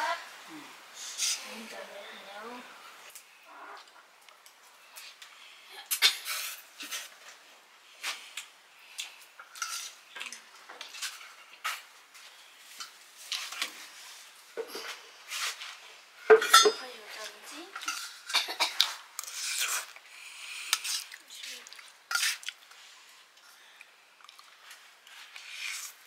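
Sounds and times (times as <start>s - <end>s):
metal cutlery and dishes clinking: 9.5s - 11.8s, 16.3s - 16.9s, 17.8s - 19.8s.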